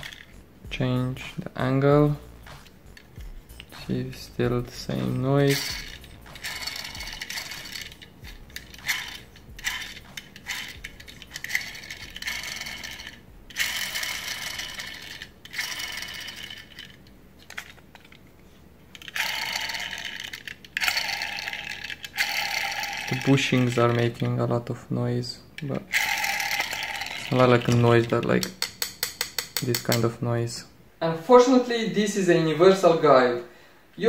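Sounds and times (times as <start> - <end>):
gearbox gears whirring rattle: 4.8 - 18.2, 19.0 - 24.2, 25.9 - 28.6.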